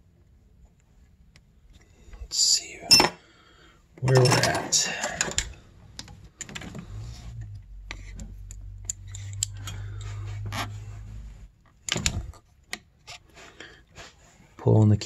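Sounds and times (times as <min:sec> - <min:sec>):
low steady hum: 0:00.0 - 0:12.5
small metallic clicks and rattles: 0:07.8 - 0:10.1.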